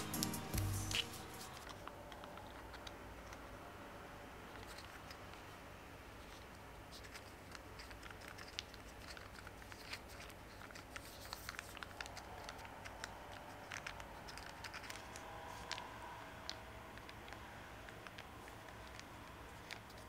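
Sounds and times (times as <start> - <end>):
plastic squishy crinkling: 6.2 - 20.0.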